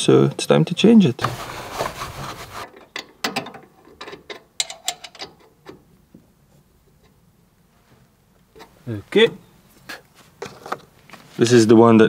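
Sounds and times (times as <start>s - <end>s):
tools and parts clicking and knocking: 2.7s - 5.9s.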